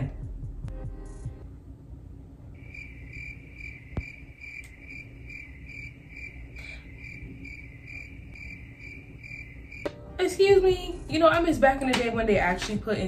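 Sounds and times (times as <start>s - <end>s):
crickets chirping: 2.6s - 9.9s.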